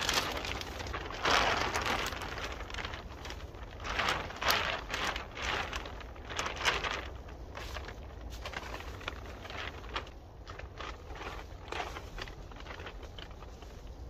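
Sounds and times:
plastic tarp rustling and crinkling: 0.0 - 14.0.

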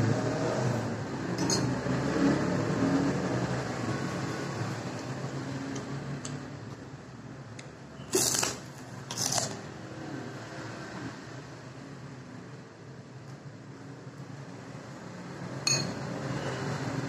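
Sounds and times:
cracker crunching: 8.1 - 9.6.

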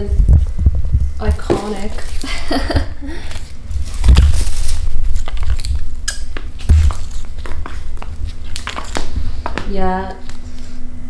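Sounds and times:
sandal footsteps on wooden floor: 6.3 - 10.4.

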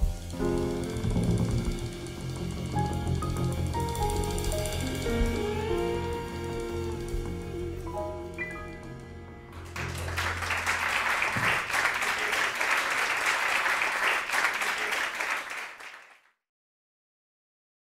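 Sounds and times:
held bass and piano note: 0.0 - 11.8
audience applauding: 9.5 - 16.3.

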